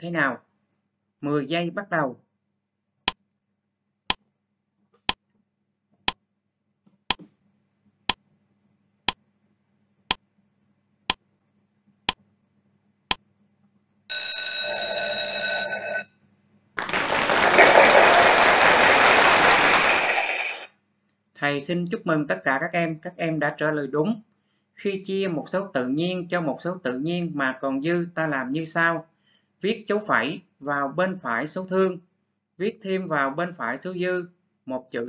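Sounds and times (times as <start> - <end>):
bell-like alarm ringing: 14.1 - 16.1
loud rush of noise: 16.8 - 20.7.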